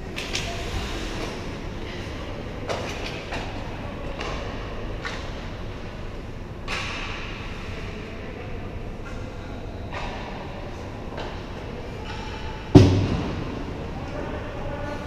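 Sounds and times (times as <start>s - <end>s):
low rumble of rink hall: 0.0s - 15.0s.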